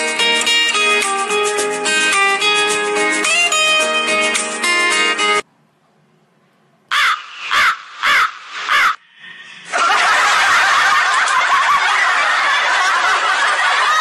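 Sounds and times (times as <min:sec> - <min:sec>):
music: 0:00.0 - 0:05.4
crow cawing: 0:06.9 - 0:09.0.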